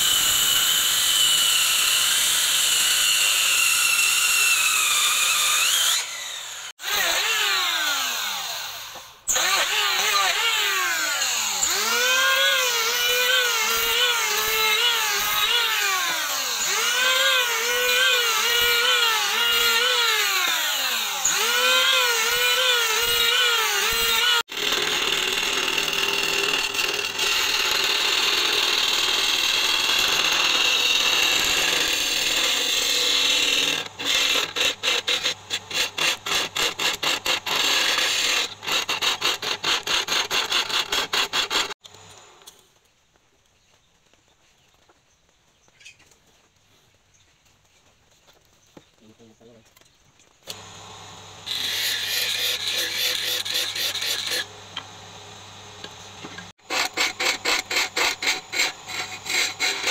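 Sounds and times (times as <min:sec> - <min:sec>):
electric planer whining: 0:00.0 - 0:34.4, 0:50.5 - 0:57.0
wood lathe turning: 0:00.0 - 0:42.3, 0:50.5 - 0:59.9
chisel scraping spinning wood: 0:11.3 - 0:41.7, 0:51.5 - 0:54.9, 0:55.8 - 0:59.9.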